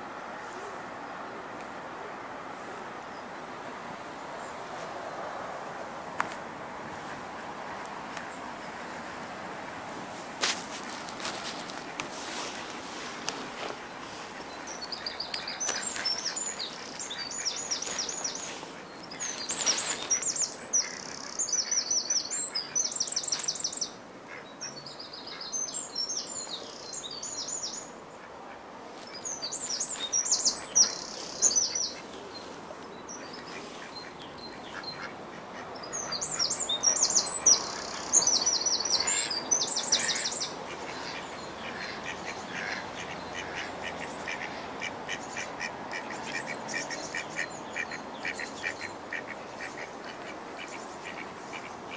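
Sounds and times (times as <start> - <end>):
songbird chirping and trilling: 10.8 - 28.4, 29.0 - 51.9.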